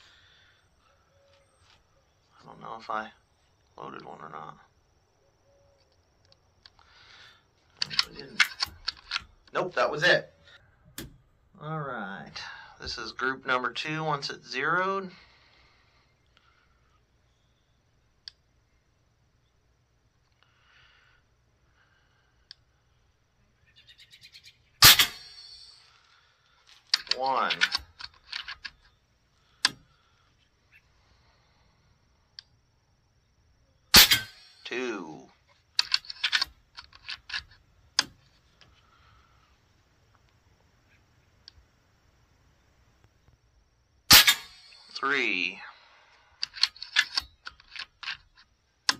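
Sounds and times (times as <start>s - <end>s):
faint clicks and ticks: 18.2s - 18.5s
air rifle shot: 24.8s - 25.5s, 33.9s - 34.5s, 44.1s - 44.9s
air rifle action clicking: 35.8s - 38.2s, 46.4s - 48.2s.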